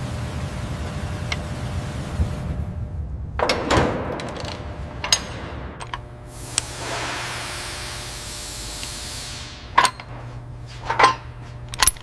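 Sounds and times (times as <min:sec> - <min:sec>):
steady low hum: 0:00.0 - 0:12.0
metal tools clunking and clicking: 0:04.2 - 0:06.0, 0:09.8 - 0:10.2, 0:10.8 - 0:12.0.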